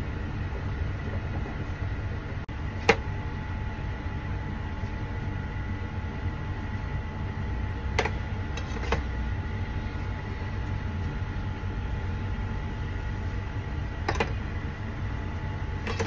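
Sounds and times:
low mechanical hum: 0.0 - 16.0.

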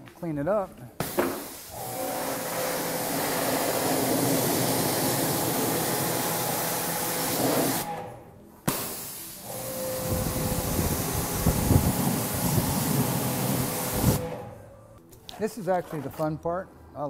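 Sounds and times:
pressure washer spray hissing: 1.0 - 7.9, 8.7 - 14.4.

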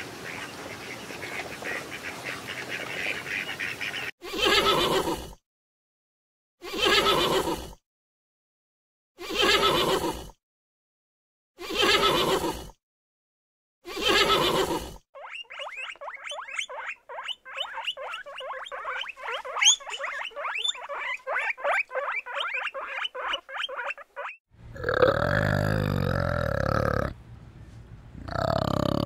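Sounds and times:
rapid high squeaks: 15.2 - 24.4
low grunting animal call: 24.6 - 27.2, 28.2 - 29.0.

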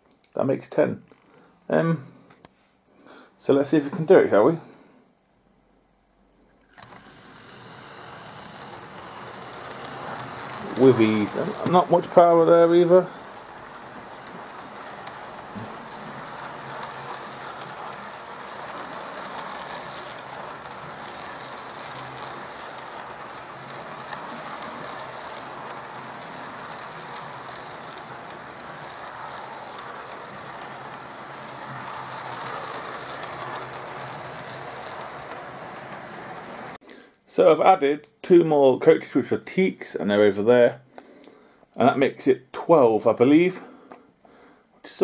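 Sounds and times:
model train whirring rumble: 6.7 - 36.8.

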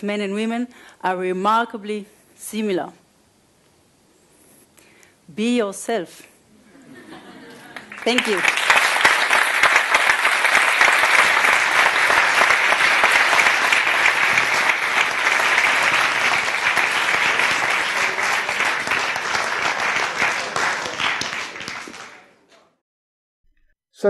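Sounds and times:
audience applauding: 6.9 - 22.3.

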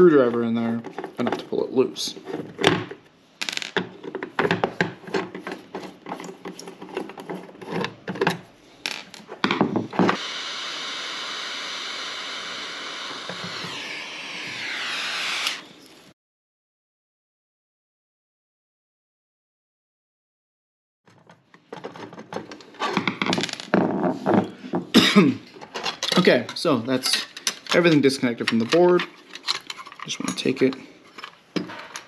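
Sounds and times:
handheld torch flame hissing: 10.1 - 16.1
tools clicking and knocking: 21.1 - 24.9, 25.6 - 32.0.

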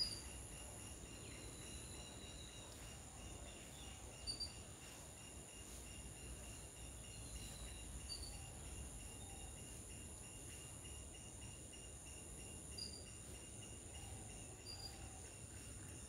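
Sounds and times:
insect chorus trilling: 0.0 - 16.0.

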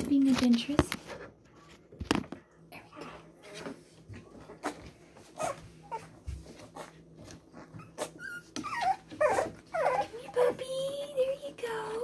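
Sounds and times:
puppies whimpering: 5.4 - 12.0
puppies squealing: 7.6 - 10.6.

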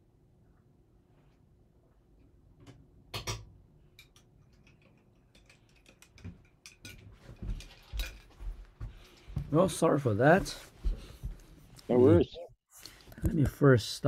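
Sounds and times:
small objects clicking and tapping: 2.7 - 8.3.

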